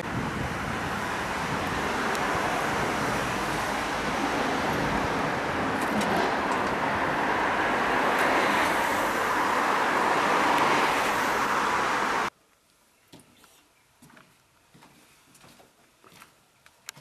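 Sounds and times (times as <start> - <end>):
cars driving past: 0.0 - 12.3.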